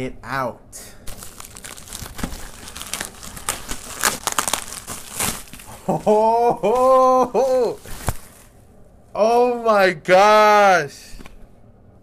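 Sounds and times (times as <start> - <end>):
plastic envelope tearing and crinkling: 1.0 - 5.8, 6.8 - 8.6.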